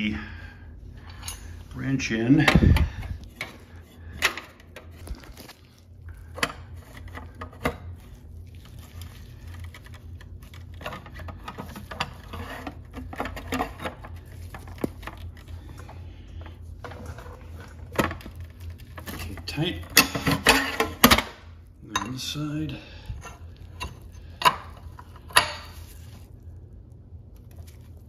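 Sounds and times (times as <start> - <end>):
low steady hum: 0.0 - 28.0.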